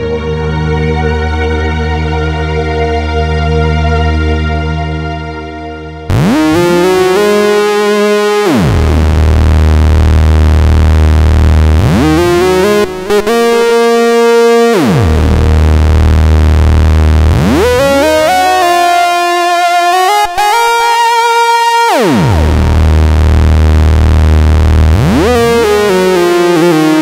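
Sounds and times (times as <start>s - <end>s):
synthesizer lead swooping in pitch: 5.3s - 27.0s
low synth bass note: 5.6s - 27.0s.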